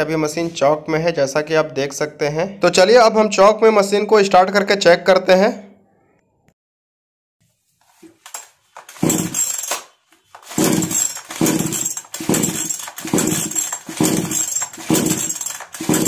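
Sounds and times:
chainsaw recoil starter pulls: 8.3 - 16.0
engine turning over: 10.4 - 16.0.

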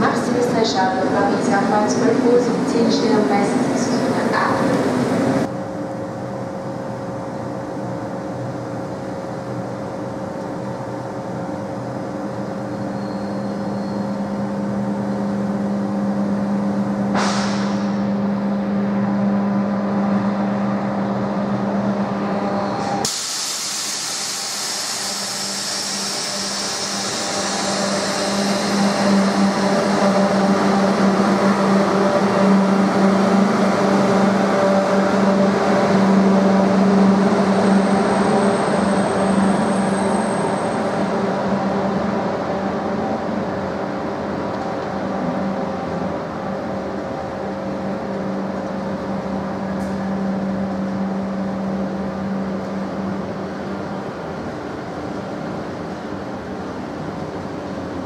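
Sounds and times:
train running along platform: 0.0 - 58.0
brief hiss: 23.0 - 27.0.

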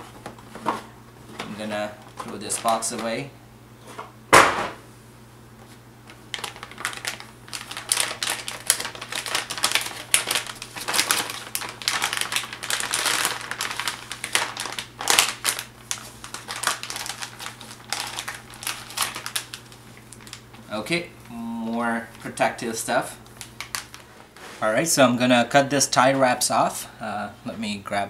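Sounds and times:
plastic bag crinkling: 1.5 - 3.3, 6.1 - 20.8, 22.2 - 24.4.

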